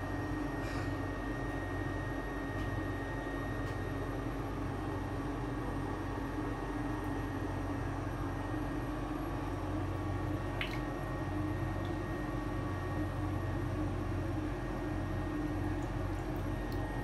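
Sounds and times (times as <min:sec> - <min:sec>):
low mechanical hum and hiss: 0:00.0 - 0:17.0.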